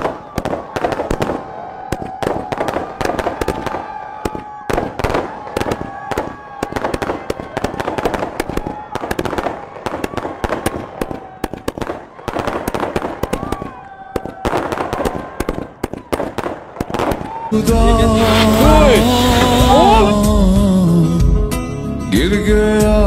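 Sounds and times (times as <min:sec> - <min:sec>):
fireworks bangs and crackling: 0:00.0 - 0:20.3
falling firework whistle: 0:16.9 - 0:20.2.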